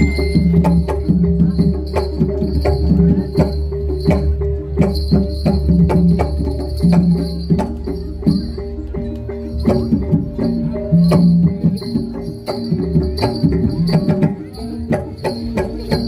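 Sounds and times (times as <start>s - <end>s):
held tone: 0.0s - 1.8s
drum strokes: 0.0s - 16.0s
gamelan music: 0.0s - 16.0s.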